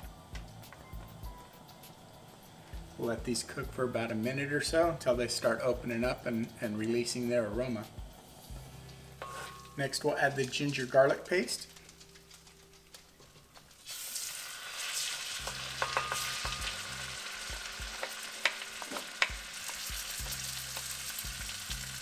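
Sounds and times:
paste sizzling in butter: 0:01.7 - 0:12.5, 0:13.7 - 0:22.0
spoon knocking against pan: 0:15.4 - 0:16.8.

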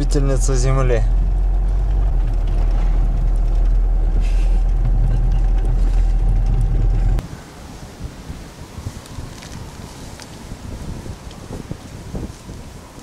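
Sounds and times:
car engine rumble inside cabin: 0:00.0 - 0:07.2.

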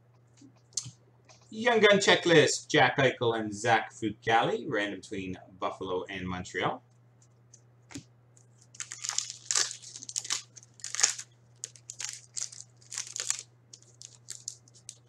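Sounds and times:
foil wrapper crackling: 0:08.6 - 0:15.0.

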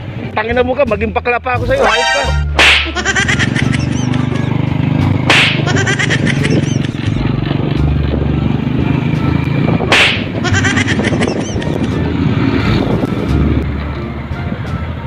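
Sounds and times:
repeating music track: 0:01.5 - 0:07.2, 0:09.9 - 0:12.1
whip-like swoosh effects: 0:01.8 - 0:03.0, 0:05.2 - 0:05.7, 0:09.9 - 0:10.4
motorcycle engine hum: 0:03.0 - 0:15.0.

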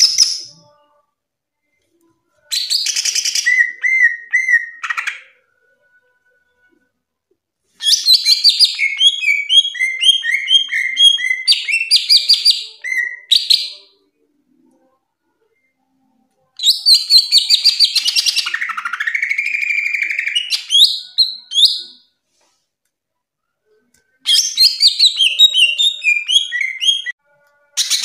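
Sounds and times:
bird singing trills and whistles: 0:07.8 - 0:13.8, 0:24.3 - 0:27.2.

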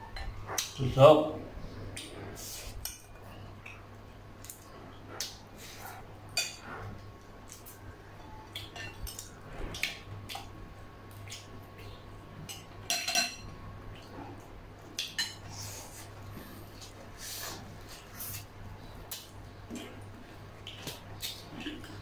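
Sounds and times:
cutlery clinking on bowls: 0:08.6 - 0:09.3, 0:12.5 - 0:13.5.

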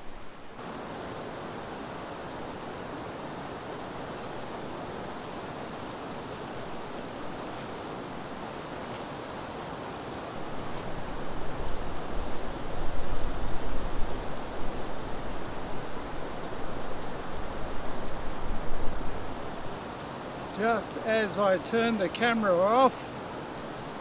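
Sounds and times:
flowing river water: 0:00.0 - 0:24.0
wind buffeting on microphone: 0:05.7 - 0:20.0.

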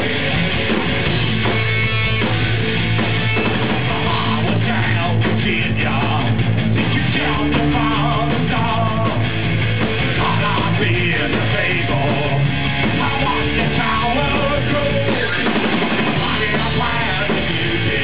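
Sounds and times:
punk rock band playing: 0:00.0 - 0:18.0
man singing: 0:03.8 - 0:09.3, 0:10.1 - 0:12.4, 0:13.0 - 0:18.0.

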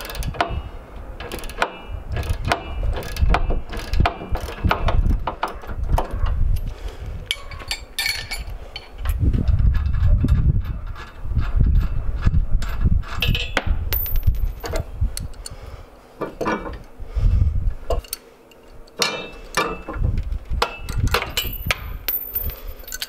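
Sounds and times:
wind rumble on microphone: 0:00.0 - 0:18.1, 0:18.8 - 0:23.0
hand tools clinking on metal: 0:07.3 - 0:09.0, 0:18.9 - 0:19.9, 0:20.6 - 0:23.0.

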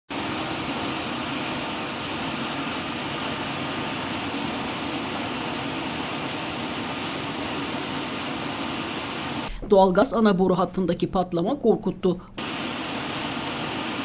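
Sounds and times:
gas hissing from pipe: 0:00.1 - 0:09.6, 0:12.4 - 0:14.0.

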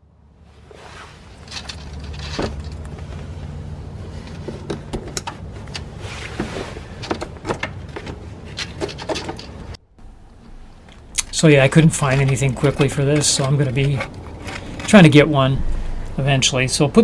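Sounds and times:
rustling: 0:00.4 - 0:16.6
steady low hum: 0:09.4 - 0:17.0.

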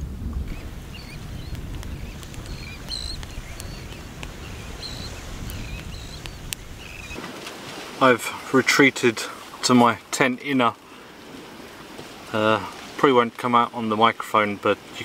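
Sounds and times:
low rumble: 0:00.0 - 0:03.5
faint clicks: 0:01.4 - 0:07.2.

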